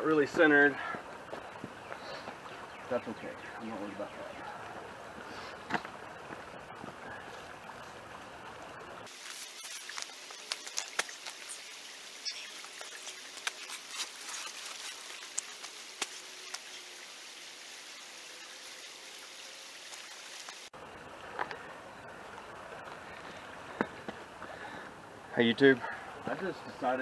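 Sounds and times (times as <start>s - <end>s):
footsteps crunching on gravel: 9.1s - 11.7s, 12.4s - 16.7s
steady hiss: 9.1s - 20.7s.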